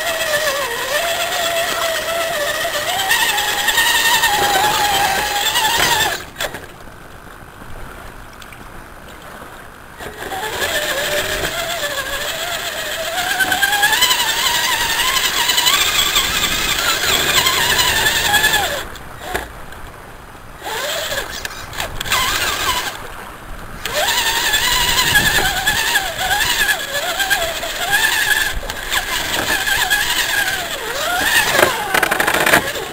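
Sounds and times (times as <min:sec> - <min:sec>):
toy truck motor whining: 0:00.0 - 0:06.7, 0:10.0 - 0:19.5, 0:20.6 - 0:23.0, 0:23.8 - 0:32.9.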